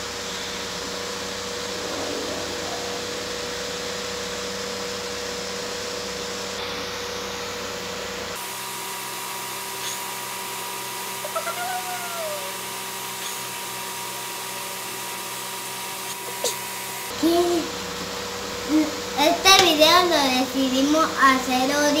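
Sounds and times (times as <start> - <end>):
faint constant hum: 0.0 - 8.0, 16.3 - 22.0.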